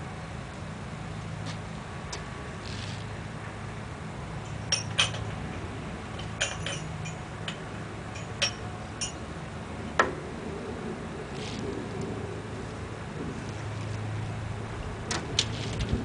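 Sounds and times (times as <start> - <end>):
tractor engine idling hum: 0.0 - 16.0
sharp metal clinks: 6.2 - 9.2.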